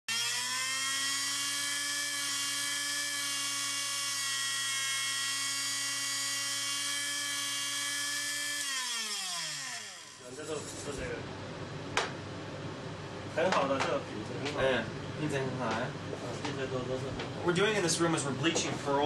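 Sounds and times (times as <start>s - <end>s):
small motor whining: 0.1s - 11.0s.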